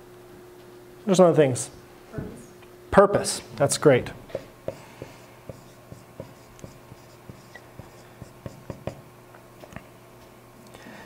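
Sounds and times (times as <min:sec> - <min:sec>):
marker writing on whiteboard: 0:04.3 - 0:09.0.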